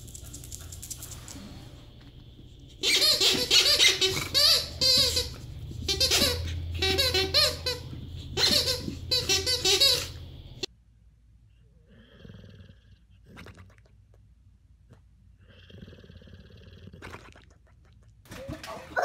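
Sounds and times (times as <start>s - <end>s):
squeaky toy squeaking: 2.8s - 10.2s.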